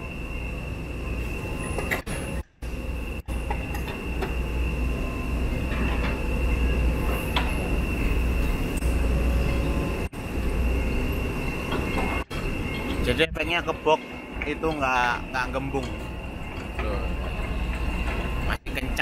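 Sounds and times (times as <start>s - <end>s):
high-pitched whine: 0.0s - 19.0s
machinery rumbling: 0.0s - 19.0s.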